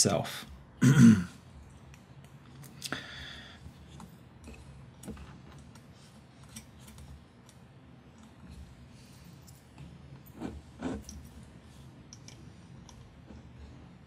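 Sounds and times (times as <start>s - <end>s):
small parts clicking and tapping: 3.8s - 8.4s, 12.0s - 13.4s.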